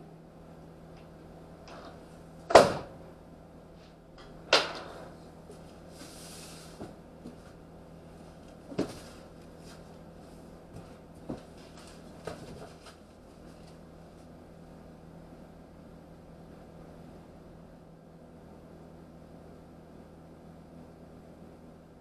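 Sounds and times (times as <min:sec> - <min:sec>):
bangs in metal van cargo area: 0:02.4 - 0:03.0.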